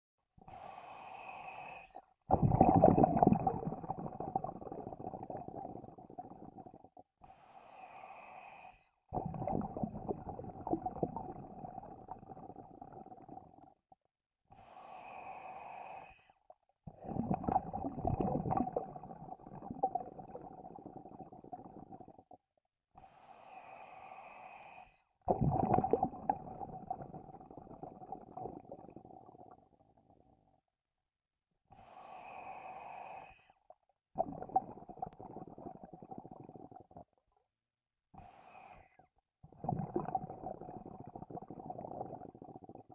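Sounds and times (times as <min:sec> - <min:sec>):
diver inhaling through regulator: 0:00.5 - 0:02.2, 0:07.2 - 0:09.0, 0:14.5 - 0:16.4, 0:23.0 - 0:25.1, 0:31.7 - 0:33.7, 0:38.2 - 0:39.1
bubbling exhaled air: 0:00.5 - 0:06.9, 0:07.8 - 0:13.6, 0:16.9 - 0:22.3, 0:23.6 - 0:29.9, 0:34.2 - 0:37.2, 0:39.5 - 0:42.9.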